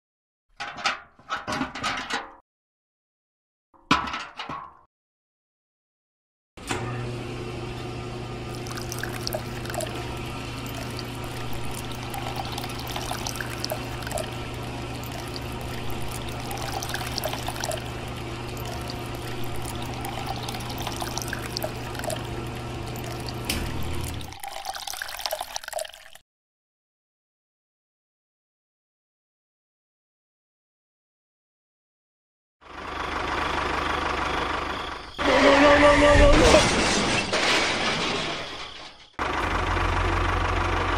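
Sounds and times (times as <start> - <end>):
electric water pump humming: 6.7 - 26.2
water pouring and splashing: 8.5 - 26.2.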